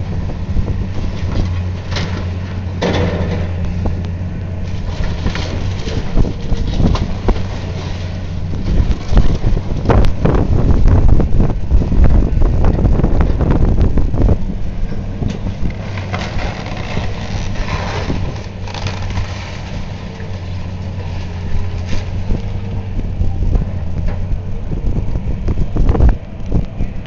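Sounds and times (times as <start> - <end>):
demolition machine engine running: 0.0 - 27.0
debris crunching and clattering: 0.8 - 11.2, 14.8 - 22.7.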